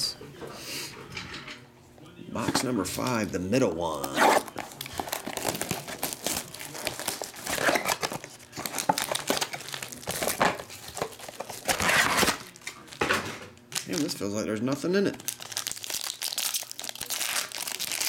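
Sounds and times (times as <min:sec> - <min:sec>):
foil pack crinkling: 0:03.9 - 0:13.0, 0:13.7 - 0:14.2, 0:14.9 - 0:18.0
cardboard box rustling: 0:04.0 - 0:12.4.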